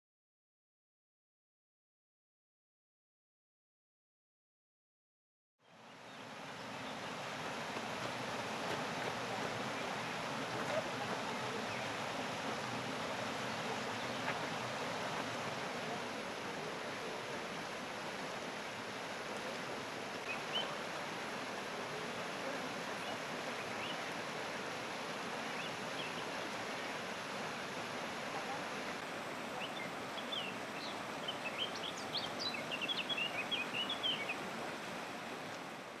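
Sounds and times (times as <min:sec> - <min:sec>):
outdoor ambient noise: 0:05.6 - 0:36.0
small birds chirping: 0:09.0 - 0:14.7, 0:20.2 - 0:21.0, 0:29.6 - 0:34.4.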